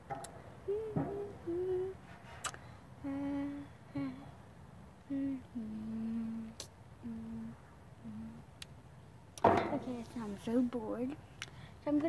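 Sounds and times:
child humming: 0.6 - 2.0, 3.0 - 4.4, 5.0 - 8.5.

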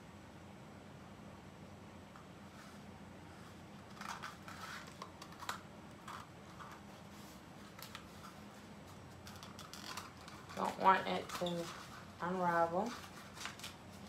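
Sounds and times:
cardboard crinkling and tapping: 12.8 - 14.0.

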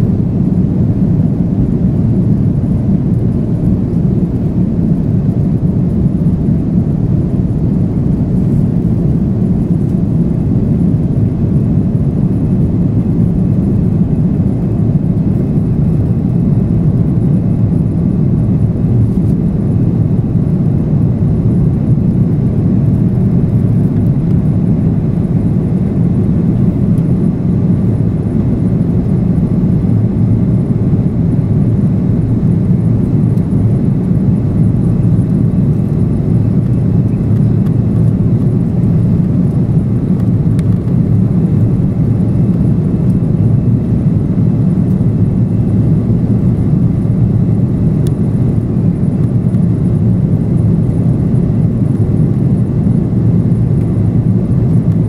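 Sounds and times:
jet airliner cabin roar: 0.0 - 55.0.

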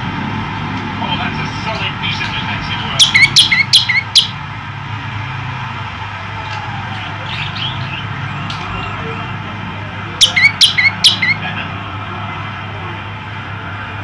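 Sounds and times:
bird chirping: 2.9 - 4.4, 7.0 - 9.2, 10.2 - 11.4.

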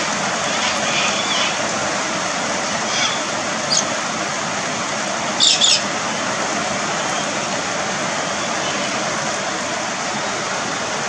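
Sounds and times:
rain hissing: 0.0 - 11.0
galahs calling: 2.7 - 4.0, 5.4 - 5.9.

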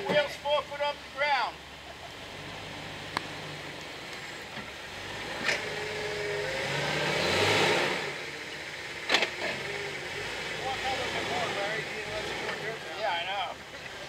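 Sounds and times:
car engine pulling off-road: 0.0 - 14.0.

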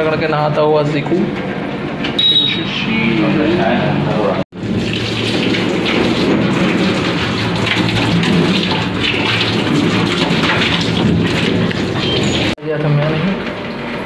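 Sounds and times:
shower water spraying: 4.6 - 12.6.

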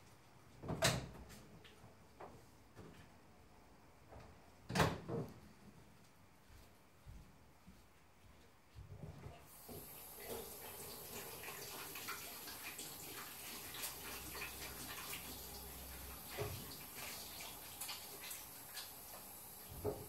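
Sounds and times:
running water hissing: 9.4 - 20.0
small drips and clicks: 9.7 - 19.4.

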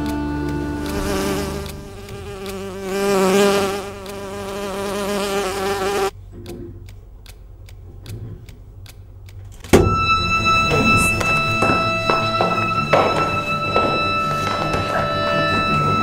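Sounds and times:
faint regular ticks: 0.0 - 5.3, 6.4 - 9.6
housefly buzzing: 0.0 - 6.1.

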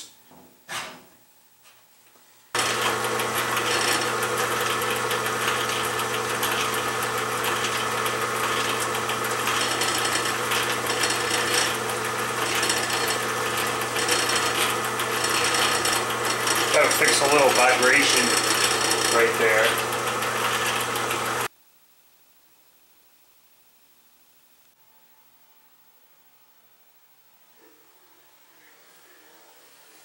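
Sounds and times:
milling machine motor humming: 2.6 - 21.5.

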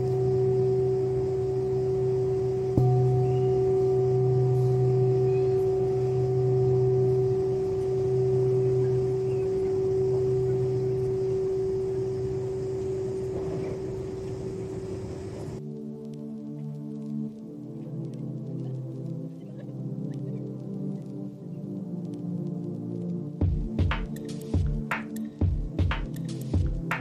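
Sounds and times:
singing bowl ringing: 0.0 - 15.6.

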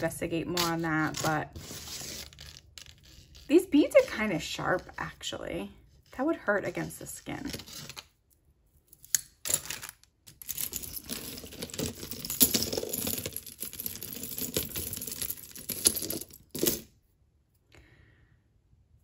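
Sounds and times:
jewelry clinking and rattling: 8.9 - 17.0.

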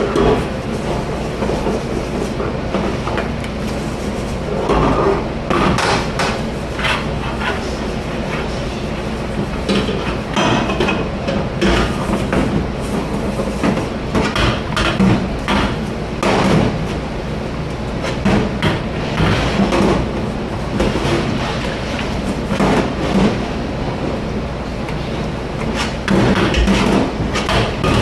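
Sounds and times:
kitchen background noise: 0.0 - 28.0
dishes and pans clattering: 9.7 - 12.6, 25.8 - 28.0.

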